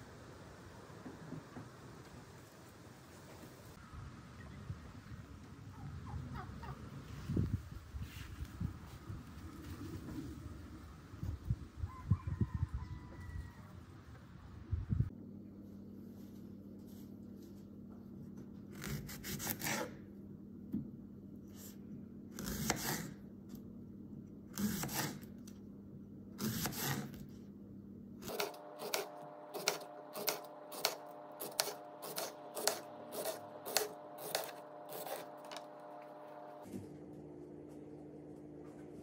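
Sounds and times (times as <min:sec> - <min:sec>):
low steady hum: 0:23.2 - 0:39.0
knife slicing cucumber on board: 0:24.6 - 0:25.2.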